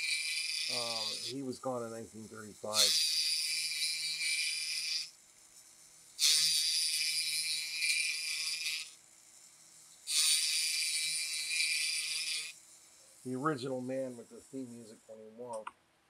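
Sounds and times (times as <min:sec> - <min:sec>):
cutter rasping into wood: 0:00.0 - 0:01.5, 0:02.6 - 0:05.1, 0:06.2 - 0:09.0, 0:10.0 - 0:14.7.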